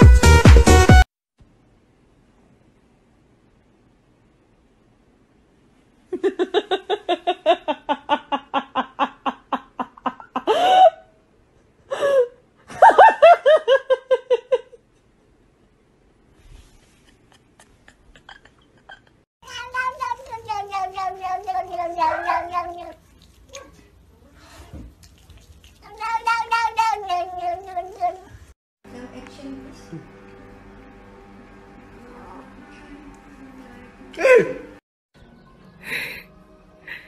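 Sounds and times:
cats meowing: 19.4 - 23.8, 25.8 - 28.4.

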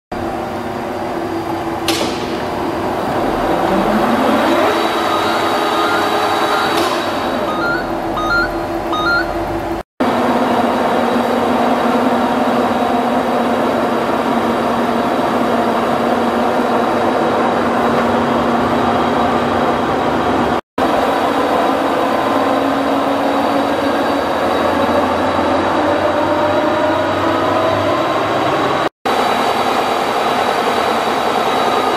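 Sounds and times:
lathe motor humming: 2.9 - 9.7
rising whine: 3.1 - 9.6.

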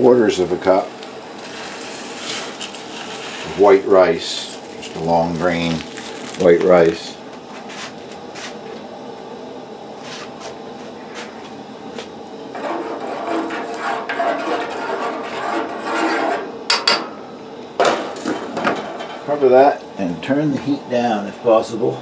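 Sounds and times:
spoon scraping a saucepan: 12.6 - 17.0.

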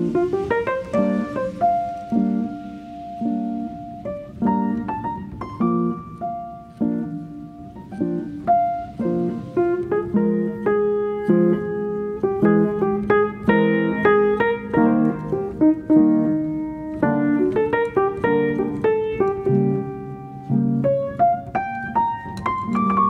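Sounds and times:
gentle piano melody: 0.0 - 23.0.

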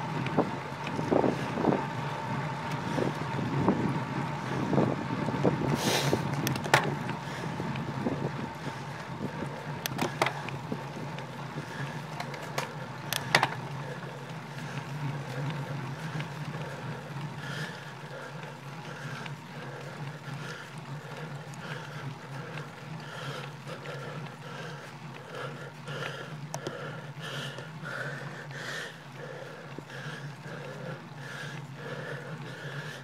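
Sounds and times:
bike rattling over bumps: 0.0 - 33.0
bike tyre and wind noise: 0.0 - 33.0.

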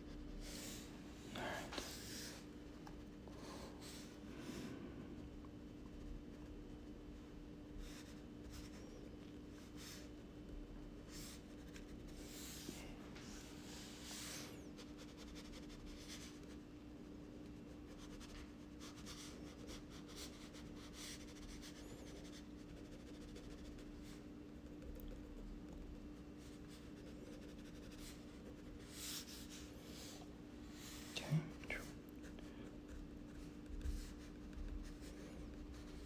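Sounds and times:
steady low hum: 0.0 - 36.0
crayon scratching on paper: 17.6 - 24.2, 24.8 - 30.2, 31.8 - 36.0.

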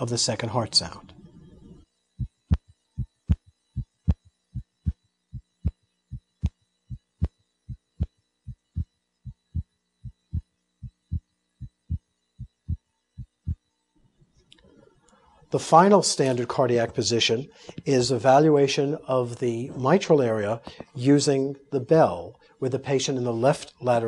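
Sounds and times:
heartbeat through stethoscope: 2.2 - 13.6.

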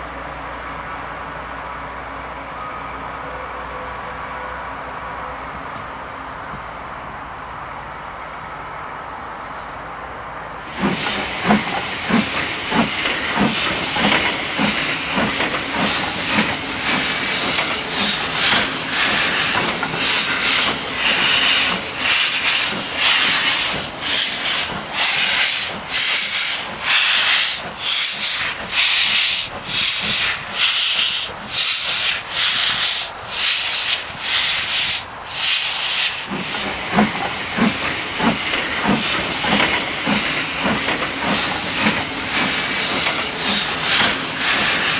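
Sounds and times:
steam hissing: 10.6 - 44.9
steam locomotive exhaust chuffs: 10.6 - 44.9.

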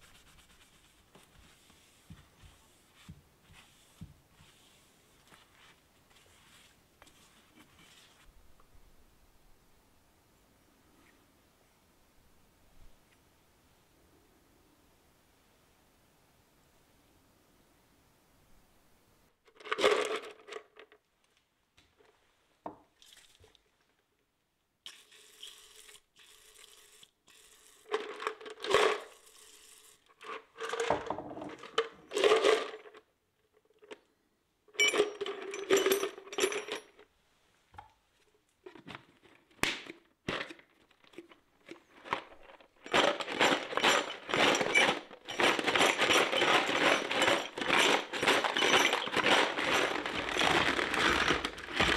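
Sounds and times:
stones rattling in plastic tub: 19.5 - 21.0, 30.2 - 33.1, 39.9 - 51.9.

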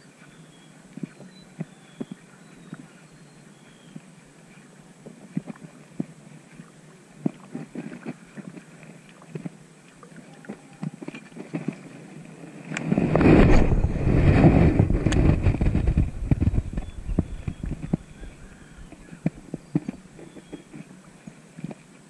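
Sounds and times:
wind gust buffeting microphone: 12.7 - 19.5.

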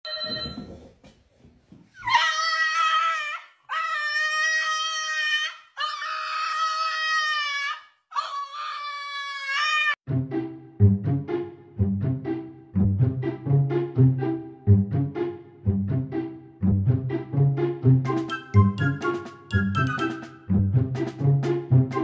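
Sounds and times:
dog howling: 2.0 - 10.0.

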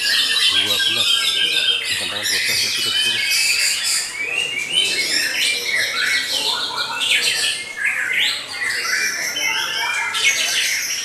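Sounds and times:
birds singing: 0.0 - 11.0.

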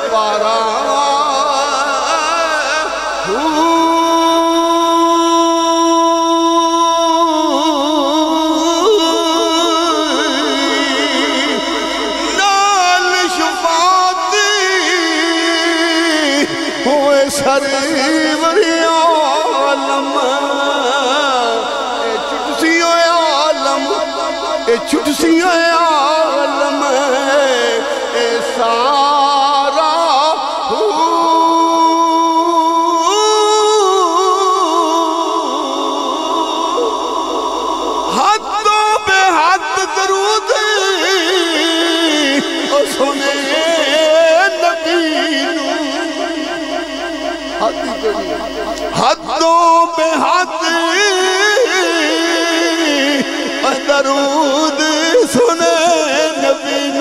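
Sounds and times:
man singing into a microphone: 0.0 - 57.0.

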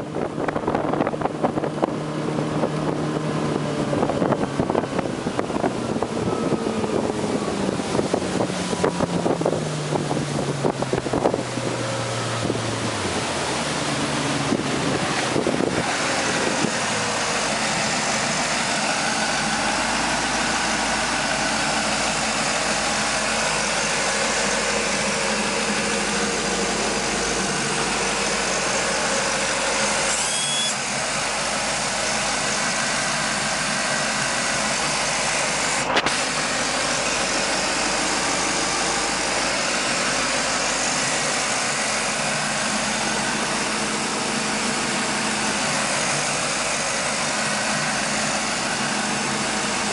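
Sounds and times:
rushing wind and water: 0.0 - 29.8
boat engine slowing then idling: 0.0 - 49.9.

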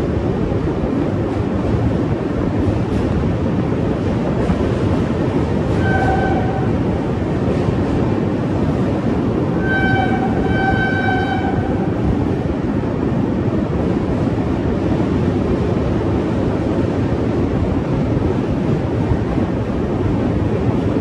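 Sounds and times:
rushing wind: 0.0 - 21.0
train wheels rumbling on rails: 0.0 - 21.0
train horn: 5.7 - 6.8, 9.6 - 12.0.

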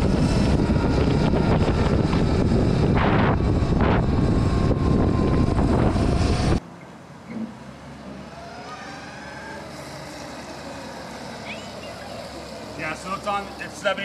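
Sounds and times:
electric motor whine: 0.0 - 6.6, 8.1 - 14.0
wind rush on microphone: 0.0 - 6.6.

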